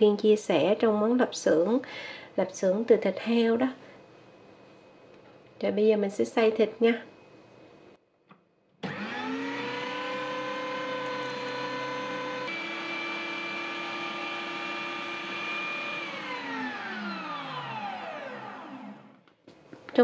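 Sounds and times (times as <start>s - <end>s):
meat grinder motor whine: 8.8s - 19.2s.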